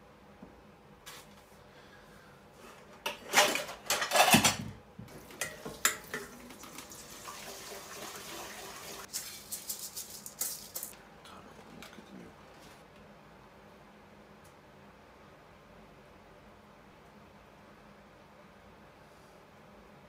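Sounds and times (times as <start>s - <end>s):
kitchenware clattering: 3.1s - 6.8s.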